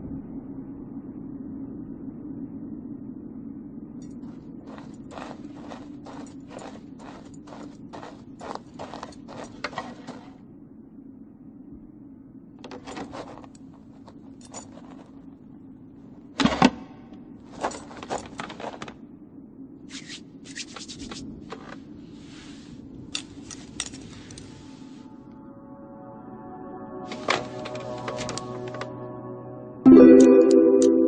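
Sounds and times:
low hum: 0.0s - 31.0s
footsteps: 4.1s - 10.4s, 12.7s - 15.3s, 17.5s - 19.0s, 27.1s - 29.0s.

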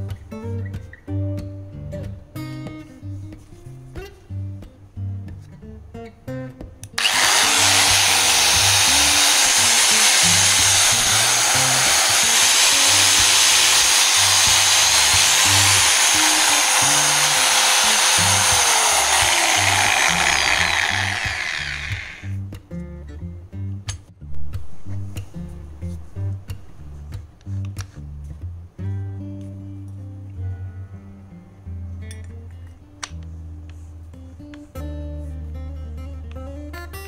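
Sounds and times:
angle grinder whining: 7.0s - 22.4s.

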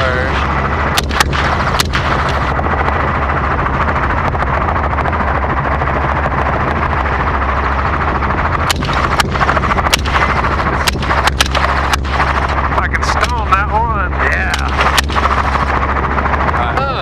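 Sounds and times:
helicopter rotor and engine: 0.0s - 17.0s
gunshots: 0.9s - 2.5s, 8.6s - 13.6s, 14.3s - 15.7s.

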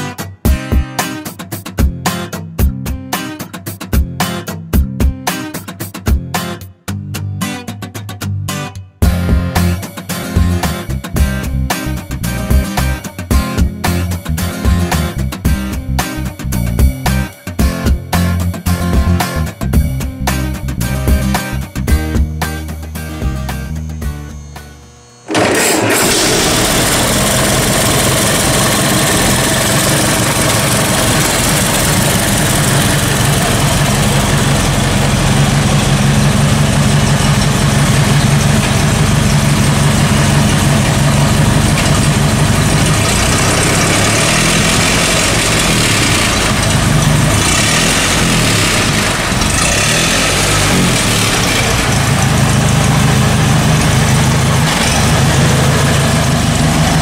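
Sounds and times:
car engine idling: 18.2s - 57.0s.

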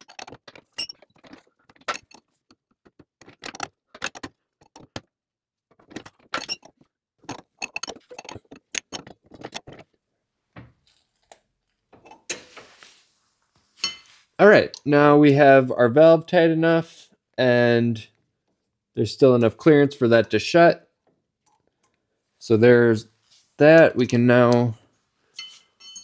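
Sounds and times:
wrench clinking against metal valve: 7.4s - 9.1s, 25.4s - 26.0s.

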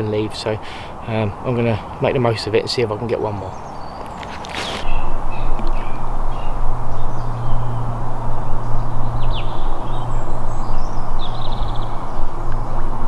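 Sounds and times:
small birds chirping: 0.0s - 13.0s
steady low rumbling: 4.8s - 13.0s.

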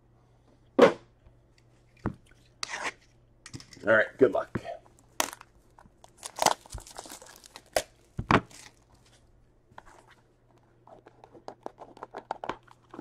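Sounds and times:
shrink-wrap crinkling and tearing: 5.2s - 9.1s.

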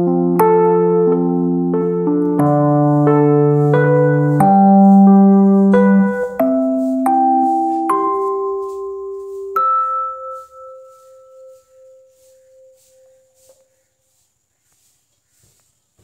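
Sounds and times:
bell-like struck notes: 2.4s - 13.5s.

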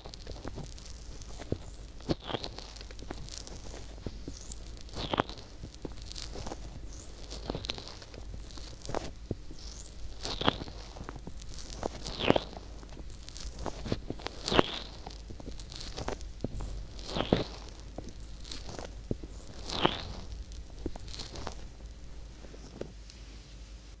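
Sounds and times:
small crackles: 0.0s - 23.3s.

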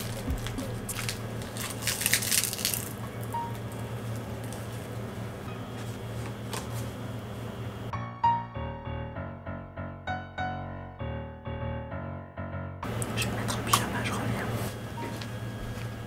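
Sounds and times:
crunchy chewing: 0.0s - 4.9s
steady low hum: 0.0s - 9.7s, 12.8s - 16.0s
piano music: 3.0s - 15.6s.

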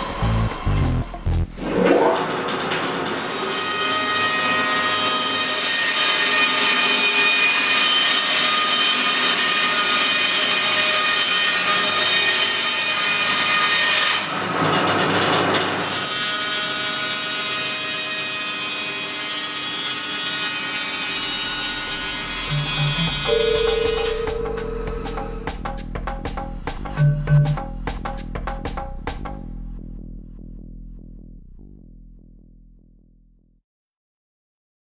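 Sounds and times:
band saw blade whining: 21.0s - 25.6s.

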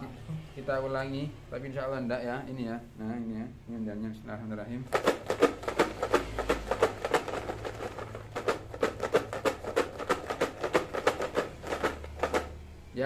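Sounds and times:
paper slips rattling in plastic container: 4.9s - 12.6s.

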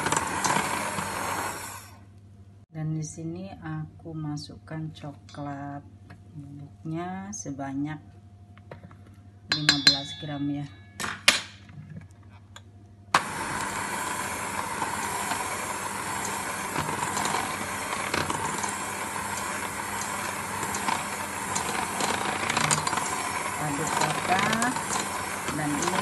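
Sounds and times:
beaters churning batter in steel bowl: 0.0s - 1.6s, 13.2s - 26.0s
electric hand mixer running: 0.0s - 2.0s, 13.2s - 26.0s.

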